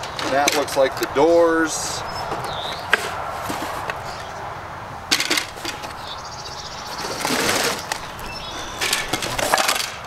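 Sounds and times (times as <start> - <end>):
cardboard box scraping and rustling: 2.6 - 4.3, 5.3 - 9.8
wooden pieces knocking together: 5.1 - 6.0, 7.1 - 10.0.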